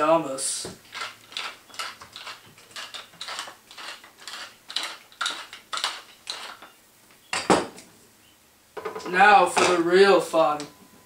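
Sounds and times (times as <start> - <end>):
pepper mill grinding: 0.8 - 6.8.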